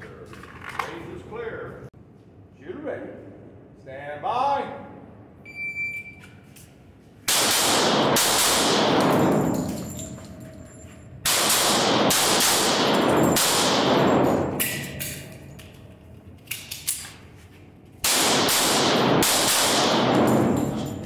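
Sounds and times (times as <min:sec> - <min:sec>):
pistol shots echoing: 0:07.3 - 0:09.8, 0:11.2 - 0:15.3, 0:18.0 - 0:21.0.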